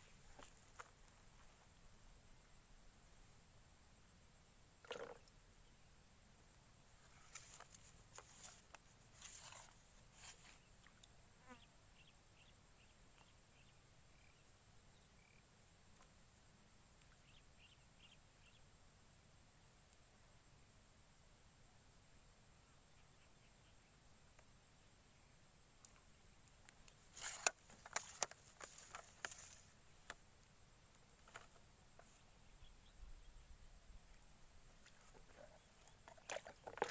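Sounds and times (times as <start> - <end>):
insect drone: 0.0 - 36.9
soft rustles and clicks: 7.0 - 10.6, 25.9 - 30.2, 31.0 - 32.3
faint rustles: 7.0 - 10.7.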